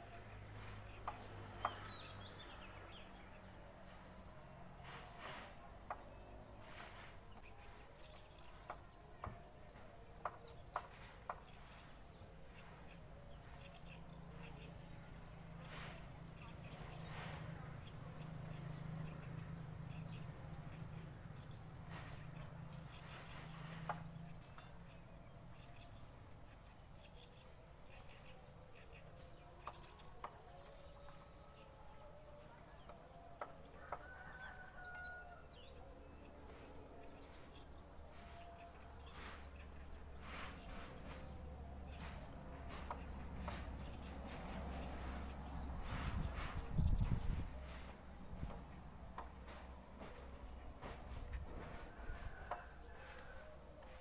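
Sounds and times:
insects trilling: 0.0s - 54.0s
distant bird calls: 4.8s - 54.0s.

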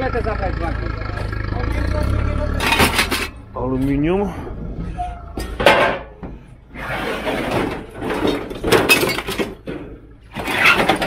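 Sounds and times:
scrap metal clanking and scraping: 2.5s - 4.0s, 4.8s - 11.0s.

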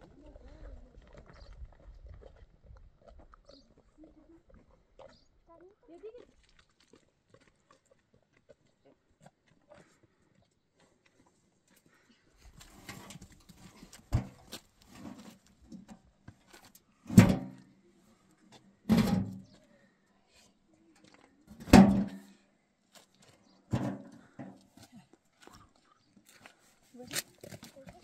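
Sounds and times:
shovel scraping metal wheelbarrow: 18.9s - 19.4s, 21.5s - 22.3s
loud hollow clanks: 21.6s - 22.3s.

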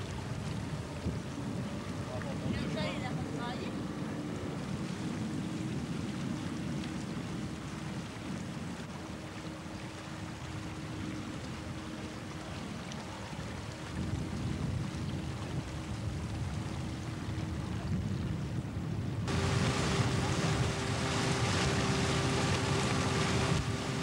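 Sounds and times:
boat engine low rumble: 0.0s - 24.0s
faint steady hum: 19.3s - 24.0s.

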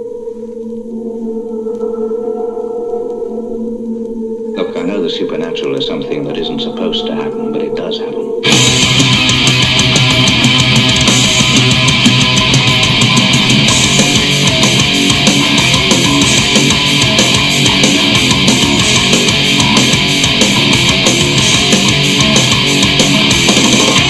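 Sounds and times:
heavy metal song on a turntable: 8.4s - 24.0s.

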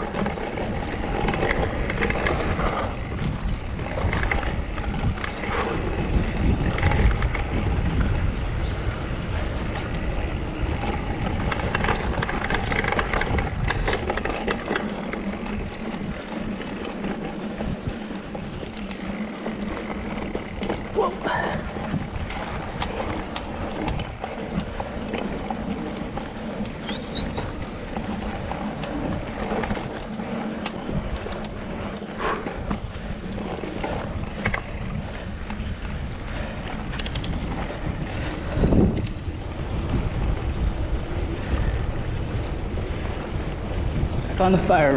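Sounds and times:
bike rattling over bumps: 0.0s - 44.9s
bike tyres crunching over dirt: 0.0s - 44.9s
wind rumbling on microphone: 0.0s - 44.9s.

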